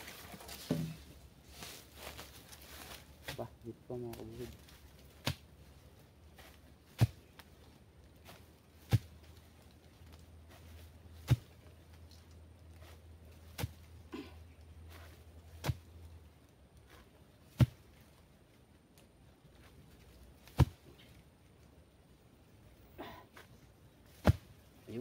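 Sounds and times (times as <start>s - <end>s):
chopping into wood: 20.4s - 20.8s.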